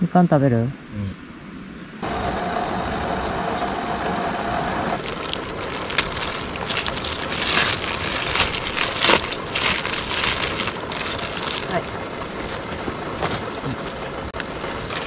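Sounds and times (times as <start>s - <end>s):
gas burner hissing: 2.0s - 8.7s
plastic bag crinkling: 5.0s - 12.8s, 14.6s - 15.0s.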